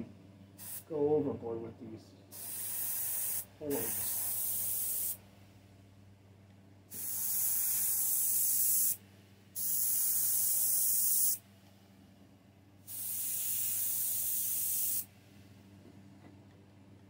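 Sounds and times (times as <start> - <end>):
steady low hum: 0.0 - 17.0
airbrush spraying hiss: 0.6 - 0.9, 2.3 - 5.2, 6.9 - 9.0, 9.6 - 11.4, 12.9 - 15.1.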